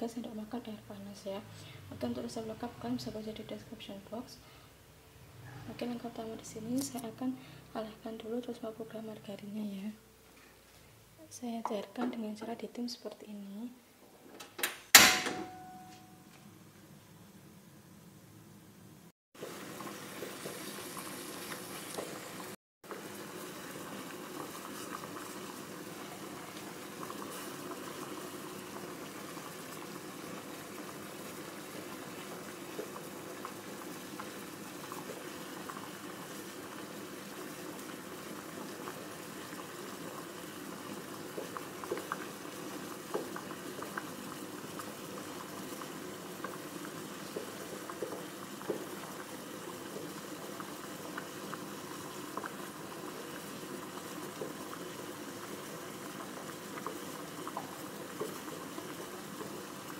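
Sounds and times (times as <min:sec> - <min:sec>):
water simmering and bubbling: 0:19.4 - 0:59.9.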